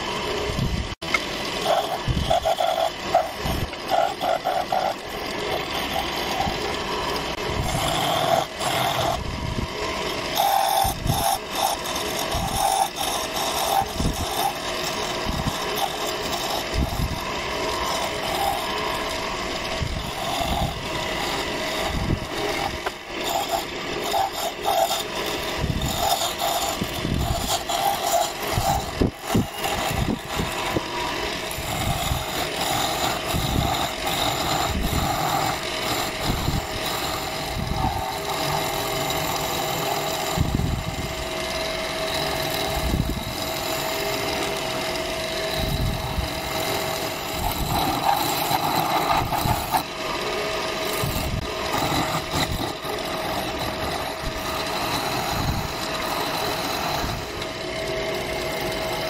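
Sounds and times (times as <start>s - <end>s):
chisel scraping spinning wood: 0.0s - 59.0s
wood lathe running: 0.0s - 59.0s.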